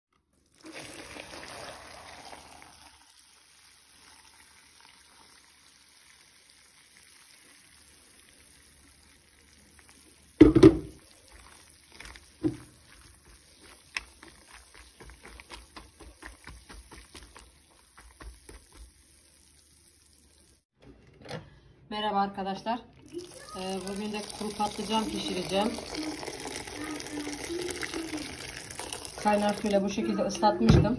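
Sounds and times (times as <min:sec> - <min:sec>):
water pouring into plastic bowl: 0:00.2 - 0:20.6, 0:23.0 - 0:30.0
small wet clicks: 0:11.2 - 0:18.9.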